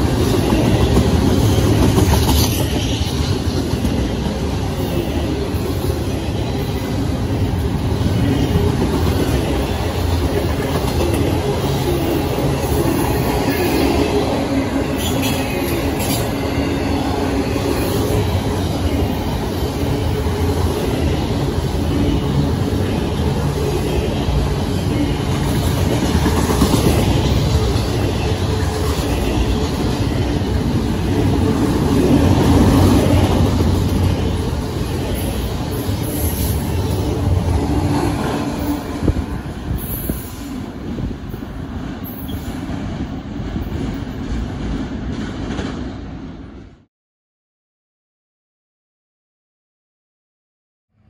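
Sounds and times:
train wheels rumbling on rails: 0.0s - 46.9s.

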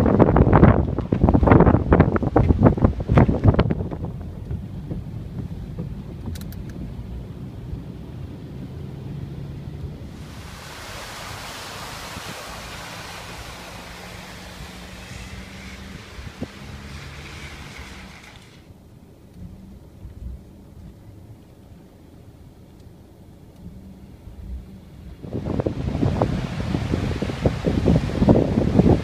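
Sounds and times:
car engine hum inside cabin: 0.0s - 29.0s
tyres spraying through water: 8.0s - 18.8s.

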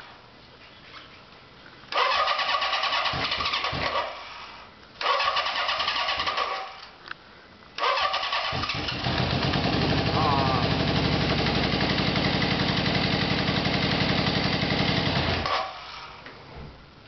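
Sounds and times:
motorcycle engine firing: 1.9s - 4.3s, 5.0s - 6.8s, 7.8s - 16.2s
motorcycle electric starter cranking: 1.9s - 7.0s, 7.8s - 16.3s.

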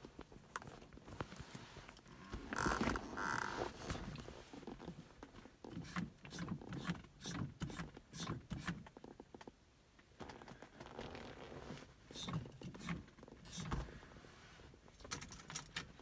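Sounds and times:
accelerator pedal clicks and creaks: 2.1s - 3.8s.

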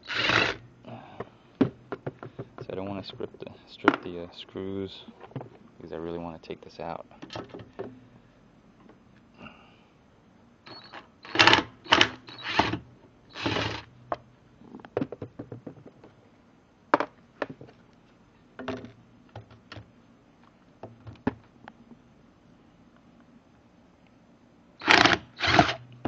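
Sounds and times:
impact driver bursts: 0.0s - 0.6s, 10.7s - 13.9s, 24.8s - 25.8s.

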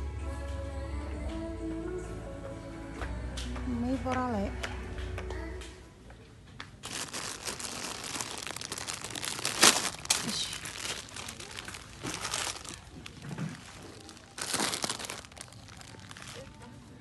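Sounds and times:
plastic packaging crinkling: 6.8s - 17.0s.

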